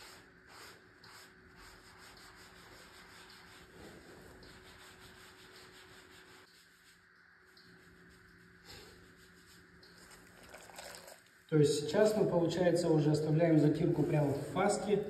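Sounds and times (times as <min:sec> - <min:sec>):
sponge rubbing on tile: 0:00.0 - 0:10.3, 0:13.8 - 0:15.0.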